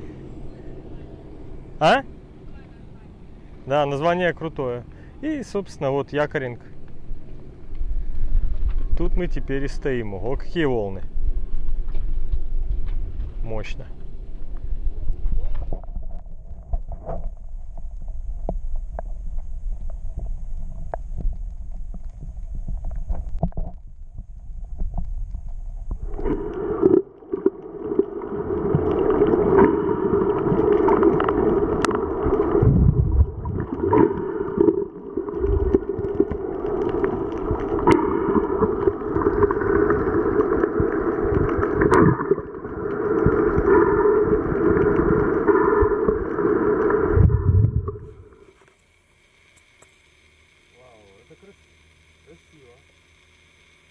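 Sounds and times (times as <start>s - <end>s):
underwater rumble: 0.0s - 48.6s
underwater churning noise: 15.6s - 49.5s.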